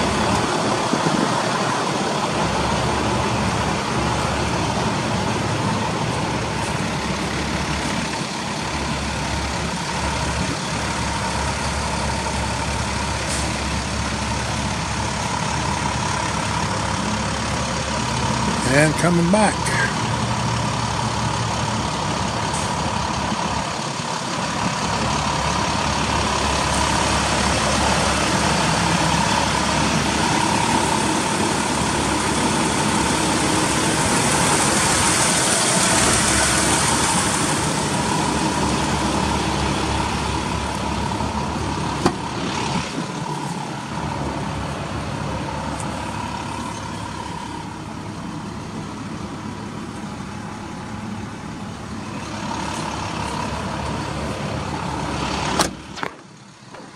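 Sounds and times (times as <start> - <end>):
truck engine idling: 0.0 - 56.9
sharp click: 55.6 - 56.9.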